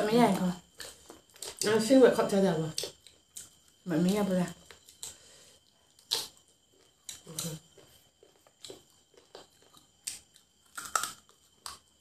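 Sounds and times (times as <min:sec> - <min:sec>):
chewing and lip-smacking: 0:04.7 - 0:12.0.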